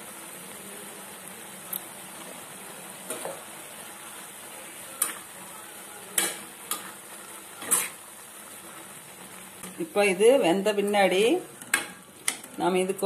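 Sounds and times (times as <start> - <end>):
pan sizzling: 0.0 - 13.0.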